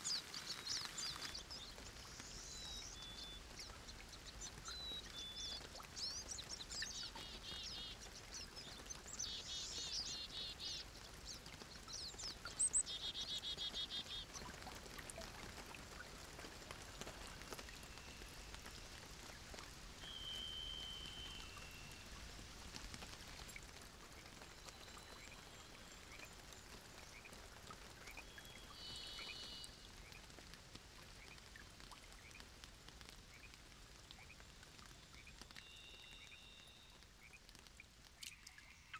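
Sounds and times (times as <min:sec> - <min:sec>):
faint steady hiss: 0:00.0 - 0:38.9
whistled bird notes: 0:20.0 - 0:22.2.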